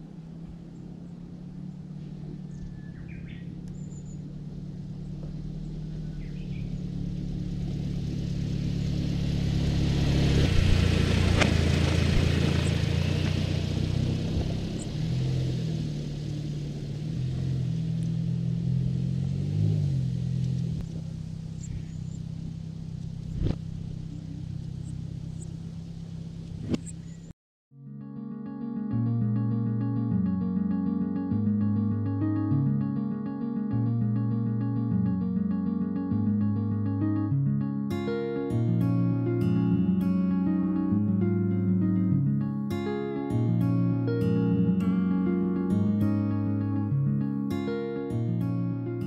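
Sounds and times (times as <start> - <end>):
van engine running: 0.0 - 27.3, 29.5 - 49.0
faint bird chirps: 0.6 - 4.4, 5.1 - 7.0, 20.8 - 23.2, 26.8 - 27.3.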